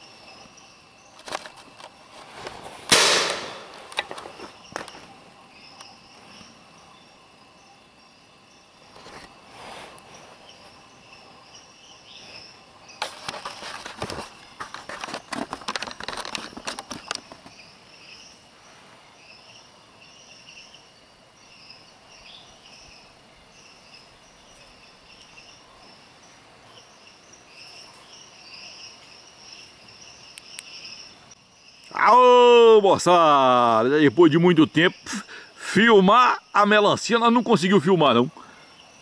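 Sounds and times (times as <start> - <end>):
rustling of leaves and brush: 0.0 - 7.0, 8.6 - 20.2
night insects chirping: 0.0 - 39.0.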